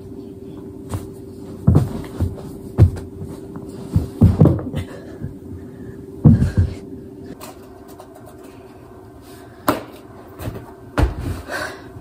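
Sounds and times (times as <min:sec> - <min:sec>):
faint steady hum: 0:00.0 - 0:12.0
body falling on carpeted floor: 0:00.9 - 0:04.8, 0:10.4 - 0:11.5
thumps of socked feet: 0:00.9 - 0:04.8.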